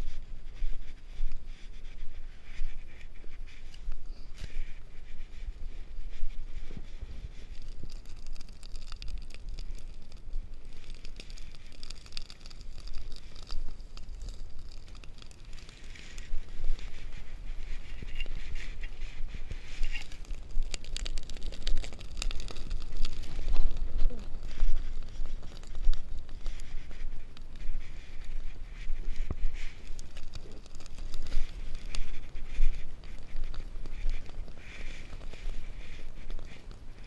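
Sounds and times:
grass fire crackling and popping: 0.0 - 37.0
wind rumble on microphone: 0.0 - 37.0.

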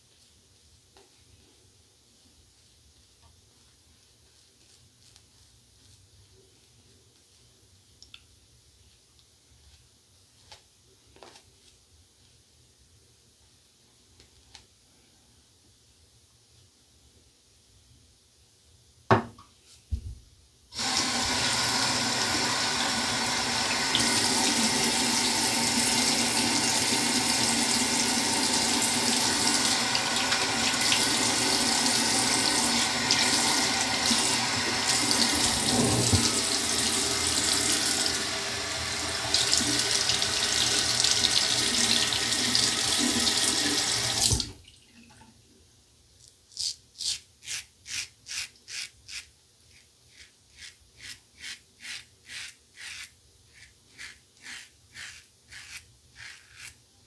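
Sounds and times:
sink tap running: 20.8 - 44.5
razor cutting stubble: 46.5 - 56.8.

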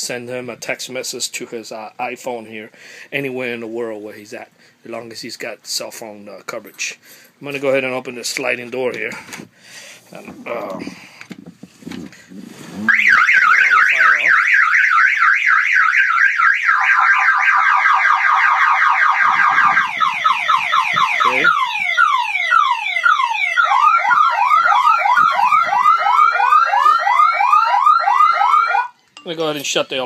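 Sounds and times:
alarm siren cycling tones: 12.8 - 29.0.

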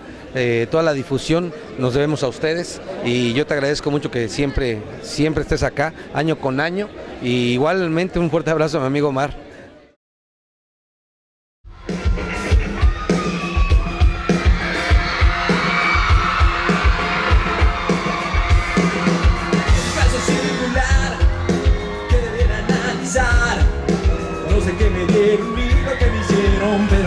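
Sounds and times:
steady bass drum beat: 11.7 - 27.0
audience yelling: 11.8 - 27.0
live pop band playing: 11.8 - 27.0.

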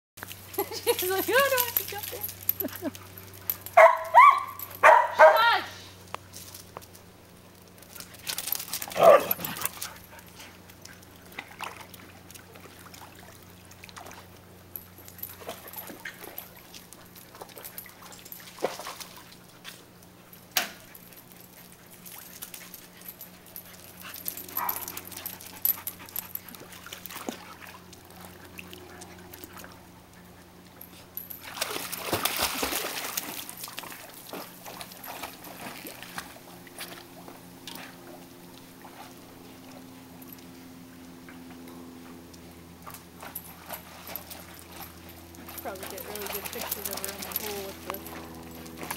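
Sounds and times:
water splashing: 31.4 - 36.2.

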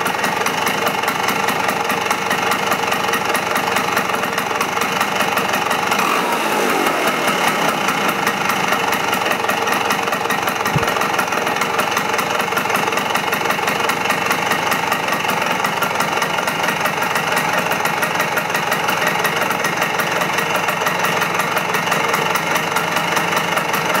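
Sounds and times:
scooter engine idling: 0.0 - 24.0
low thump: 10.7 - 11.2.

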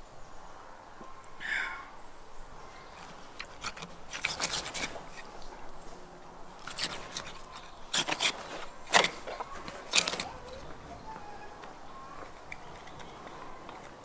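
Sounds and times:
knife cutting skin and sinew: 3.4 - 5.3.

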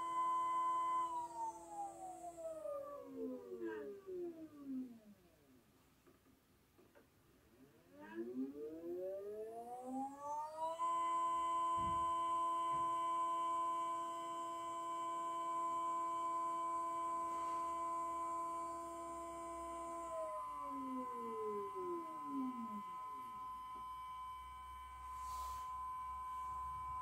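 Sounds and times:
stepper motors whining: 8.2 - 27.0.

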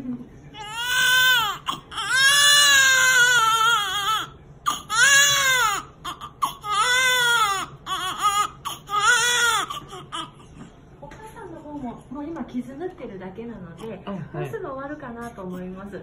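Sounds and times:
newborn baby crying: 0.5 - 10.7.

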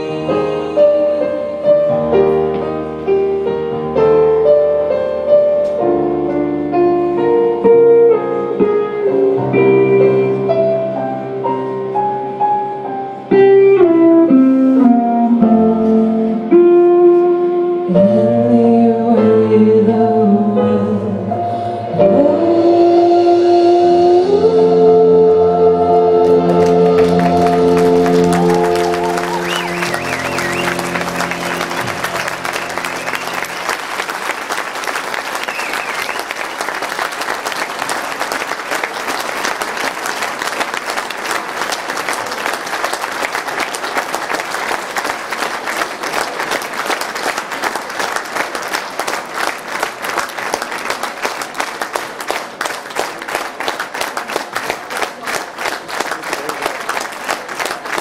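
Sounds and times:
live band closing chord: 24.0 - 35.0
audience applause: 26.2 - 58.0.

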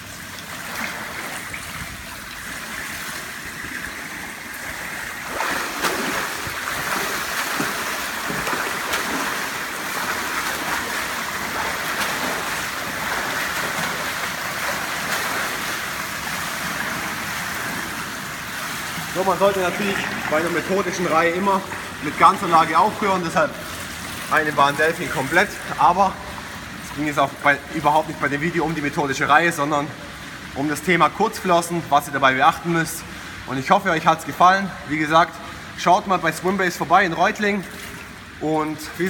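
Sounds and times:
water splashing from swimmer: 0.0 - 28.3.

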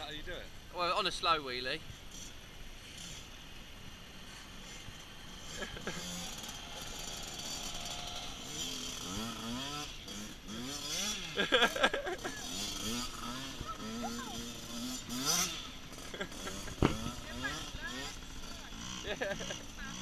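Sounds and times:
dirt bike engine revving: 1.9 - 20.0.

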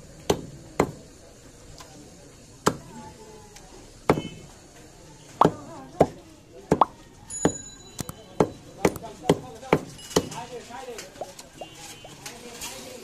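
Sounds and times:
cleaver chopping on wooden block: 0.3 - 1.0.

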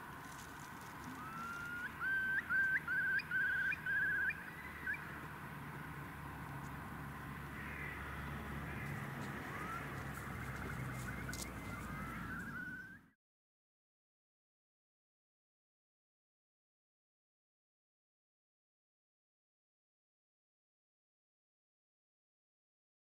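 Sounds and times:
bird calling with warbling trill: 1.1 - 5.2, 9.4 - 13.2.

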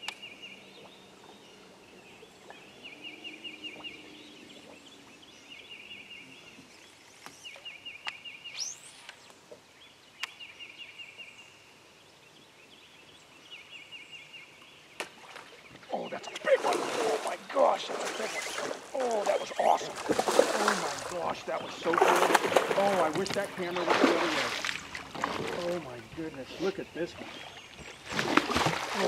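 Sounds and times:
fishing line cast whizz: 8.6 - 9.2.

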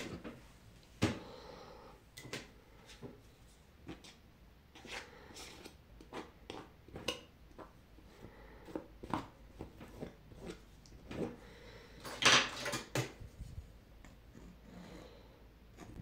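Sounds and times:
palette knife scraping and tapping: 4.8 - 7.7, 8.6 - 11.4, 15.7 - 16.0.

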